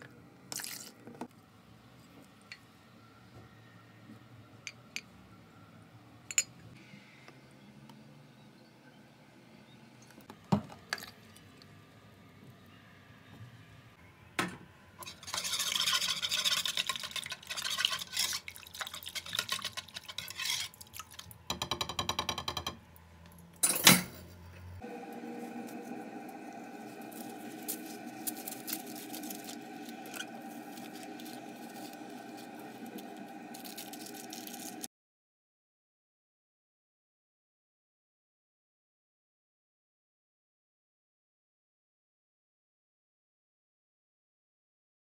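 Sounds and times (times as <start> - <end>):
whisk beating mixture in bowl: 15.0 - 21.2, 25.0 - 34.9
steady hum with faint crackles: 24.2 - 34.9.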